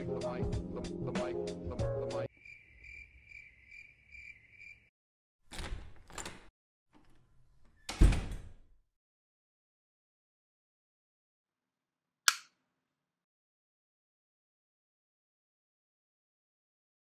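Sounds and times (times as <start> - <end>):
crickets chirping: 2.3 - 4.9
door opening with a thud: 5.5 - 8.7.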